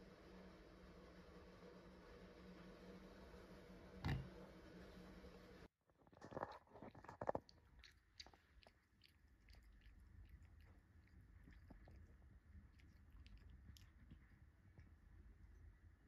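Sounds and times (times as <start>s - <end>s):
cat licking paw: 6.4s - 15.6s.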